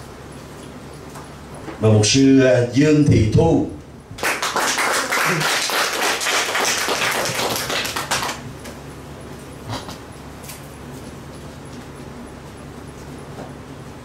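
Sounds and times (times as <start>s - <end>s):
audience clapping: 4.2s - 8.5s.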